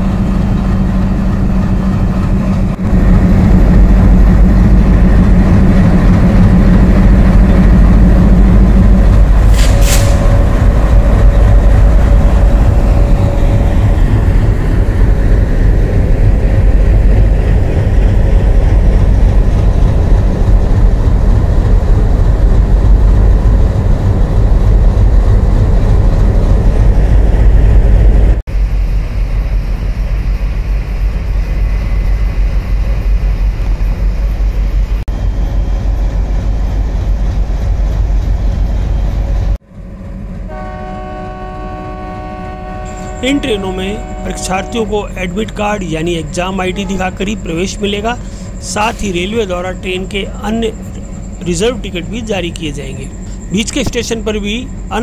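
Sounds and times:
diesel locomotives idling: 28.5s - 55.0s.

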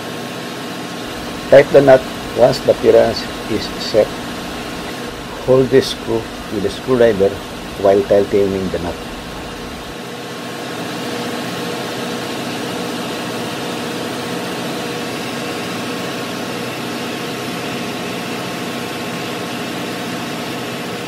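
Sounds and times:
engine-room machinery drone: 0.0s - 21.0s.

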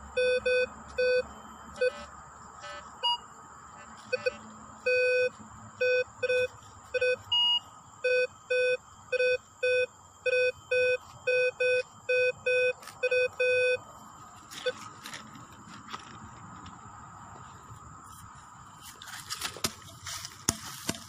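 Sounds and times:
metal detector low beeps: 0.0s - 3.3s, 4.0s - 15.2s.

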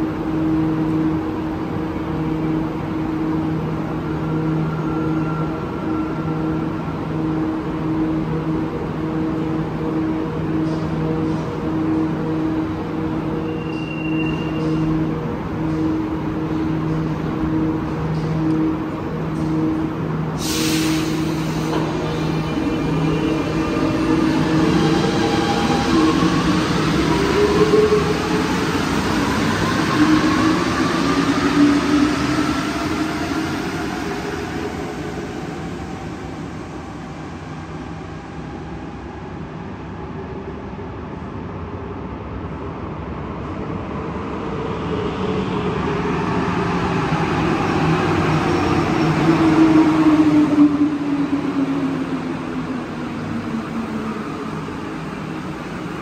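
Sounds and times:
metro train motor whine: 0.0s - 41.3s.

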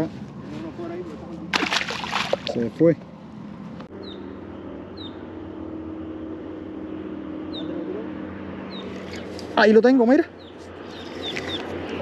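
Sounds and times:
engine hum: 0.0s - 12.0s
bird chirps: 4.0s - 5.3s, 7.4s - 7.8s, 10.3s - 11.7s.

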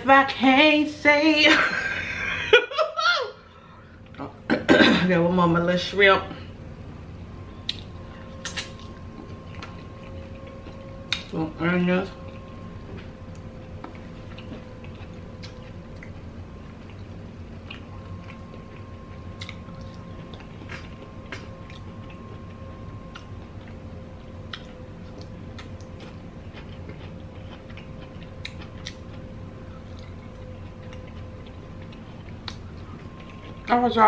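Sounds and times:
faint steady hum: 0.0s - 34.0s
chewing and wet mouth sounds: 7.6s - 34.0s.

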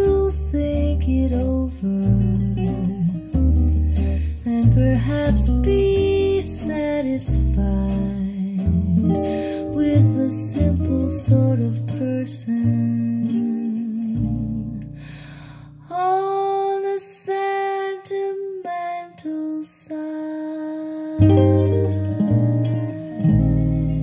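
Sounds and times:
bass line: 0.0s - 15.8s, 21.2s - 24.0s
guitar notes: 0.0s - 15.8s, 21.2s - 24.0s.

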